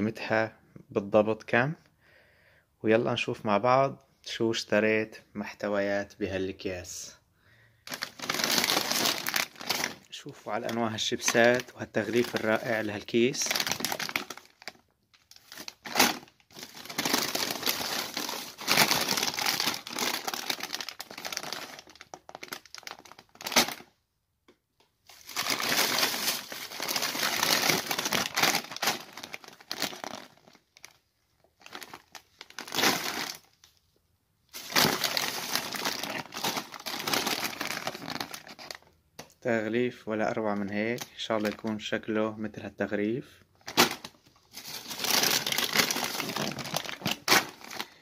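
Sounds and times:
crisp packets crinkling: 0:07.8 - 0:23.9, 0:25.0 - 0:33.8, 0:34.5 - 0:39.0, 0:40.4 - 0:41.8, 0:43.6 - 0:48.0
plastic bag rustling: 0:07.9 - 0:23.9, 0:25.0 - 0:33.6, 0:34.5 - 0:38.8, 0:43.6 - 0:48.0.

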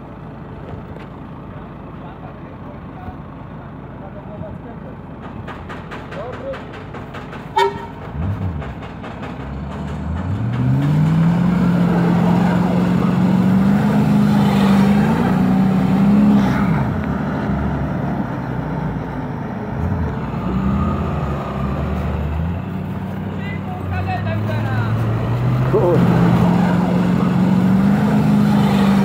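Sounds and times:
car engine revving: 0:08.0 - 0:29.0.

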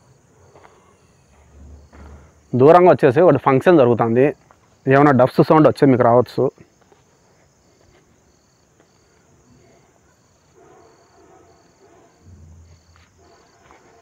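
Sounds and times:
crickets chirping: 0:00.0 - 0:14.0.

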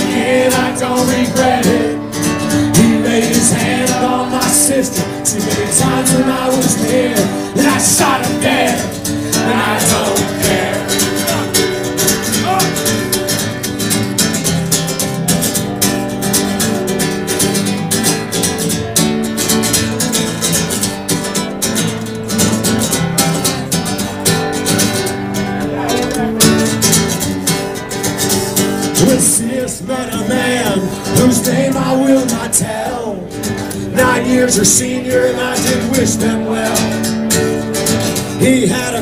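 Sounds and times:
acoustic guitar strumming: 0:00.0 - 0:39.0.

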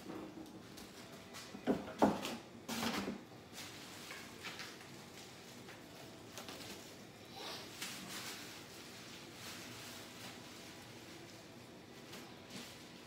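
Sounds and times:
shredded paper rustling: 0:03.5 - 0:13.0.

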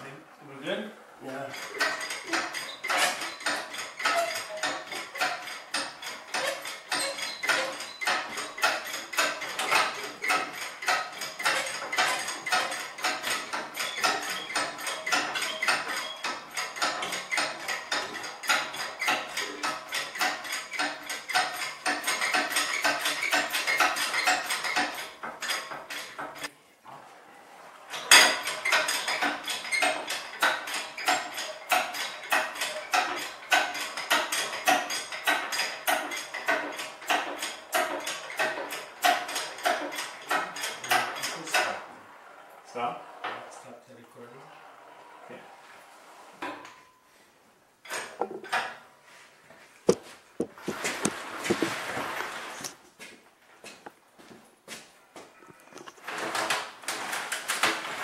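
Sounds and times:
engine hoist metallic clicking: 0:01.5 - 0:26.5, 0:27.9 - 0:41.8.

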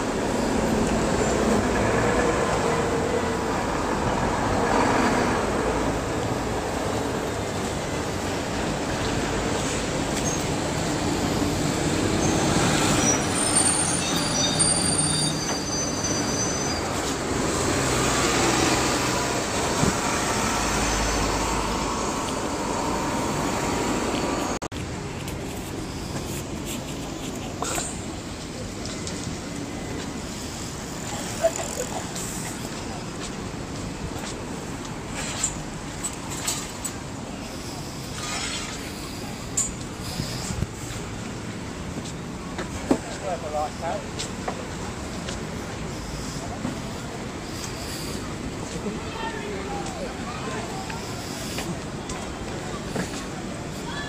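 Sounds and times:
traffic rumble and tyre noise: 0:00.0 - 0:54.0
short high-pitched squeals: 0:12.1 - 0:17.1.

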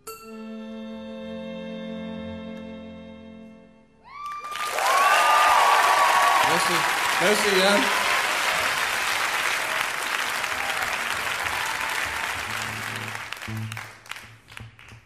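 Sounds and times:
audience applauding: 0:04.1 - 0:15.0.

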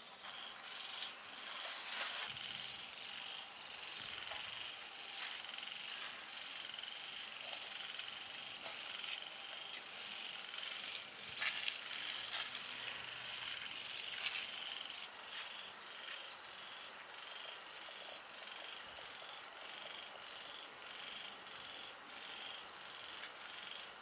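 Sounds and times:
night insects trilling: 0:00.0 - 0:24.0.

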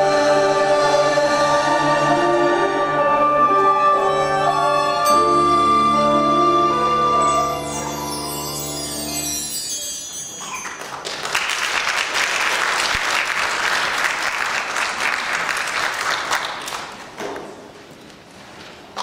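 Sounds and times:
audience applauding: 0:10.6 - 0:17.2.

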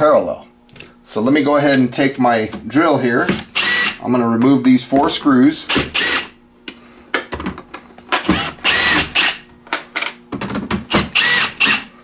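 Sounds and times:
cordless driver whirring: 0:03.4 - 0:04.0, 0:05.7 - 0:06.3, 0:08.2 - 0:09.4, 0:10.9 - 0:11.9.

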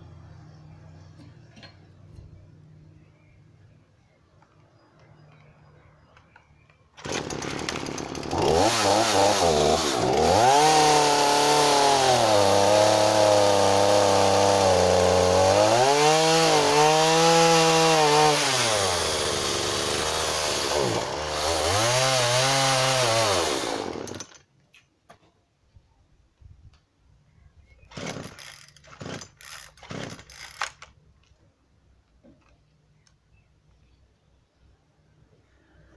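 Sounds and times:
chainsaw cutting log: 0:07.0 - 0:24.5, 0:27.9 - 0:30.9.

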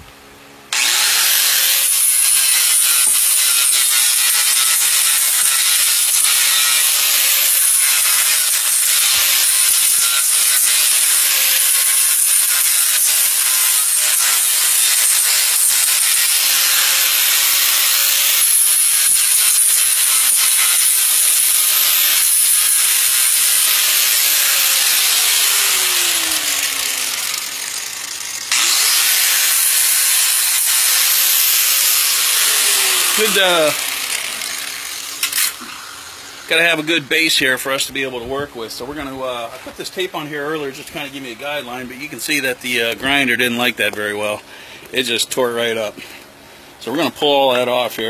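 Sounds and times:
angle grinder grinding metal: 0:00.7 - 0:38.1.

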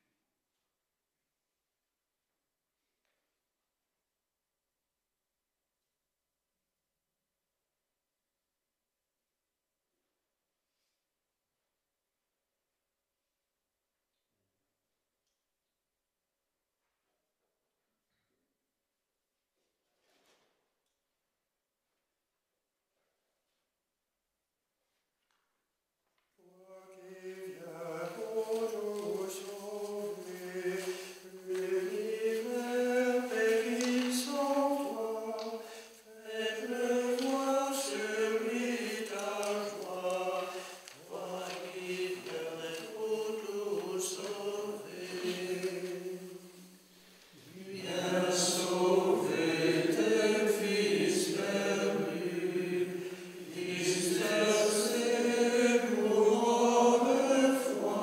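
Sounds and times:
monks chanting: 0:26.5 - 0:46.7, 0:47.4 - 0:58.0.

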